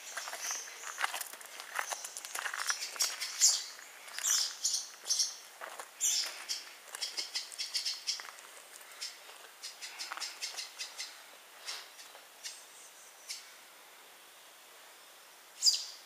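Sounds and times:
footsteps on gravel: 0.0s - 10.7s
faint bird chirps: 6.0s - 8.3s, 15.6s - 16.0s.

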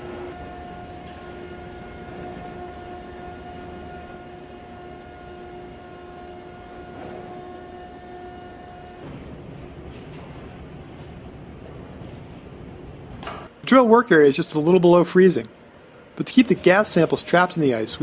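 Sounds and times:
machinery whine: 0.0s - 13.0s
machinery low rumble: 0.0s - 13.2s.

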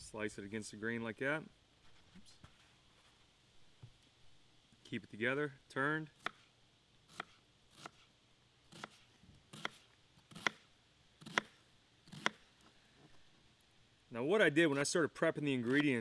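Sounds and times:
knife slicing an onion: 6.2s - 8.1s, 8.7s - 10.6s, 11.2s - 12.4s, 15.6s - 16.0s.

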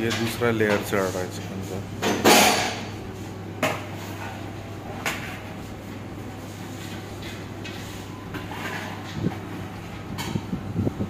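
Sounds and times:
low kitchen hum: 0.0s - 11.0s.

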